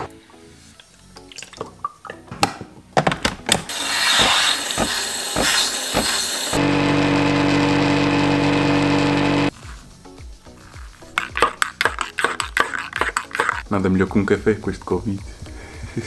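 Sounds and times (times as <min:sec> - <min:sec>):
coffee machine frothing hiss: 0:03.7 - 0:06.6
coffee machine pump hum: 0:05.4 - 0:09.5.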